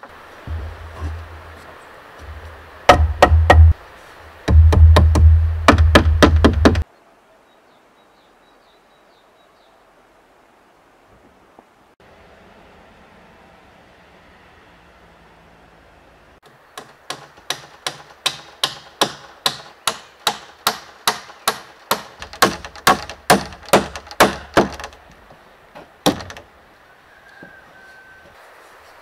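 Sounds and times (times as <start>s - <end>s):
hammer driving nails into wood: 4.5s - 6.8s, 16.8s - 25.1s, 26.0s - 26.4s.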